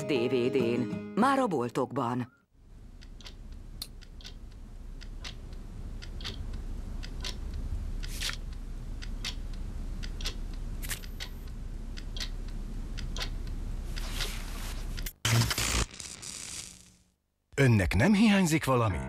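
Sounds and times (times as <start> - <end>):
steady low hum: 2.6 - 15.1
clock ticking: 2.8 - 14.3.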